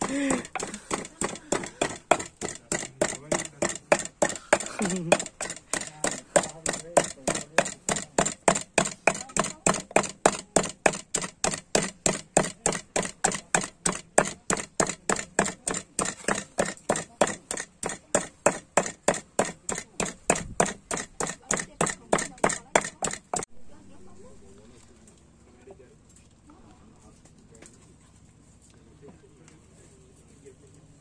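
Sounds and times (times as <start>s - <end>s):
knife chopping on cutting board: 0.0s - 23.5s.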